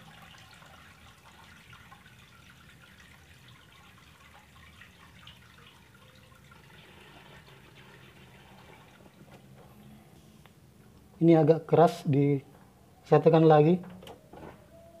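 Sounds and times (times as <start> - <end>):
water dripping: 0.0 - 9.6
water trickling: 0.0 - 10.0.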